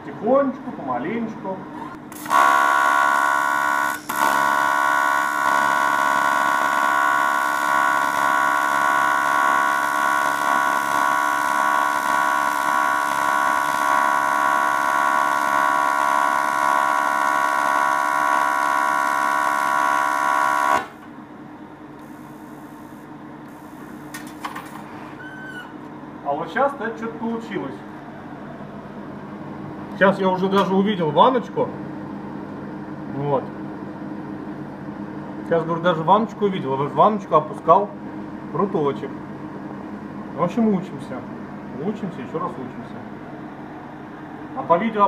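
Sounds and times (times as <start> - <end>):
welding arc buzzing: 2.1 - 21.1, 22.0 - 24.5.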